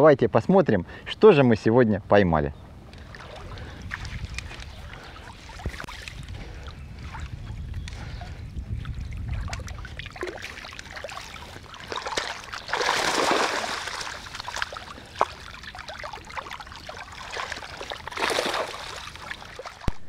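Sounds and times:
water drips and splashes: 2.9 - 20.0
water gushing through a net: 9.2 - 19.9.

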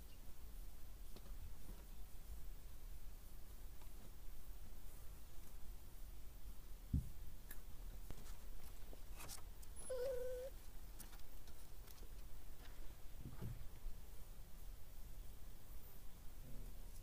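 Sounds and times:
puppy whining: 9.6 - 10.6.

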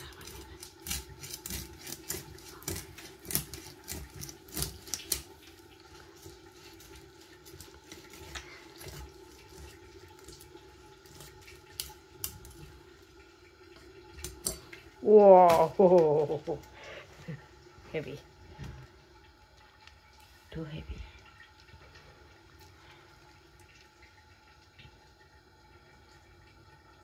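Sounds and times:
fish crackling against blade: 0.0 - 5.6
faint steady hum: 0.0 - 27.0.

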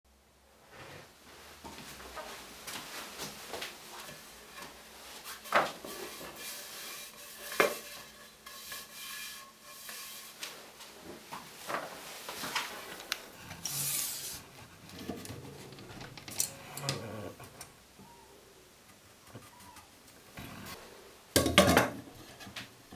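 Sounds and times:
wood rubbing on bench: 4.5 - 11.2, 12.4 - 17.6.

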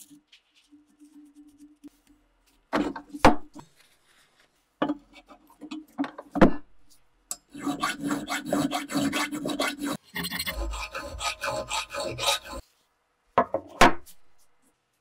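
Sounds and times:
file rasping on metal: 7.5 - 12.6.

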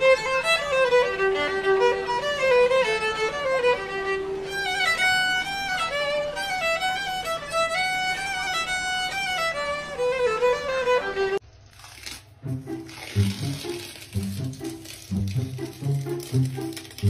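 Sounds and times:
solo violin melody: 0.0 - 11.4.

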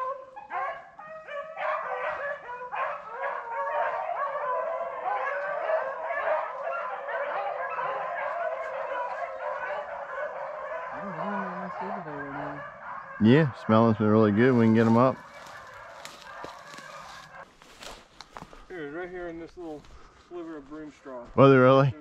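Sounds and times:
dogs barking: 0.0 - 17.5
hounds baying: 0.0 - 17.5.

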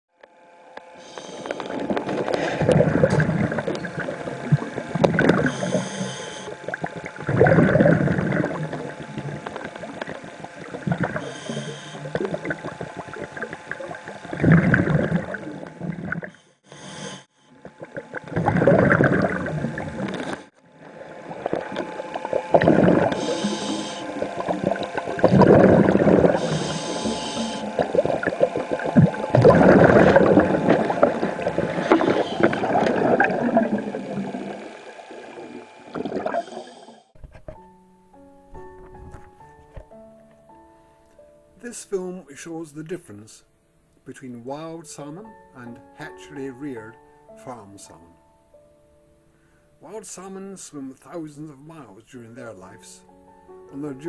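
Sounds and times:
water sloshing and gurgling: 1.1 - 37.7.

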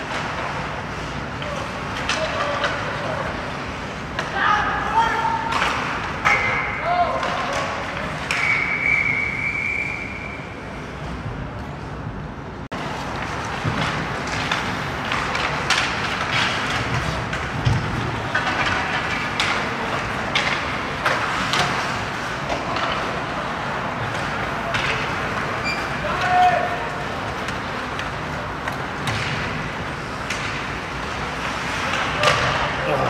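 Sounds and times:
hockey sticks and puck clacking: 0.0 - 10.3, 12.8 - 33.0
skates scraping ice: 0.0 - 11.9, 12.8 - 33.0
high whistle tone: 8.3 - 10.6.

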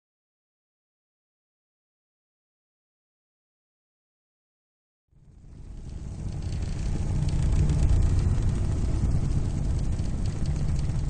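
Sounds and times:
low rumbling rush of noise: 5.2 - 11.0.

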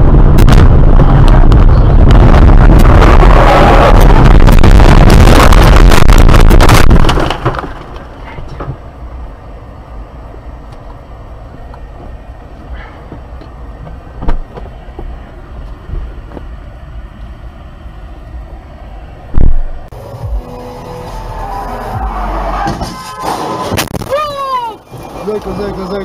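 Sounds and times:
low steady rumble: 0.0 - 22.6
car crash impacts and scraping: 6.4 - 8.8, 22.5 - 24.2.

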